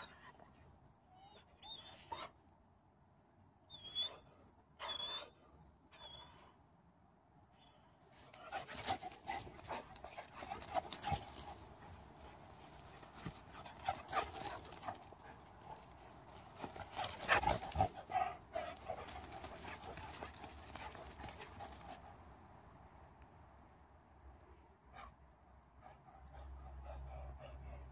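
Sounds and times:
dog noises: 8.1 - 22.3, 25.8 - 27.9
dog paws thudding on grass: 8.5 - 21.9.

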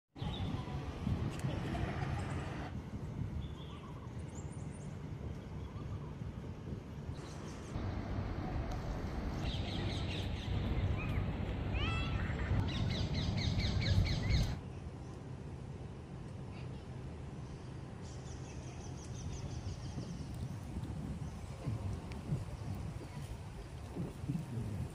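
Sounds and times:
steady low rumble: 0.2 - 24.9
birds chirping and whistling: 12.6 - 14.6.

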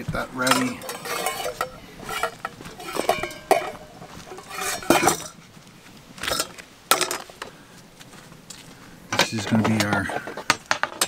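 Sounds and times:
metal utensils clinking: 0.0 - 5.4, 6.2 - 7.5.

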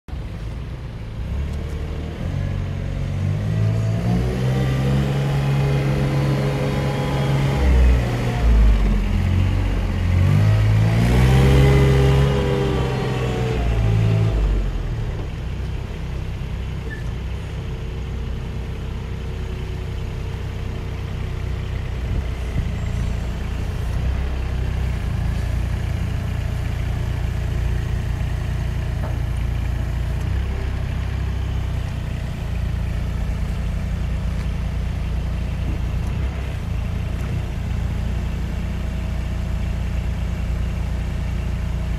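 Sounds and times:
diesel engine revving: 1.2 - 41.9.

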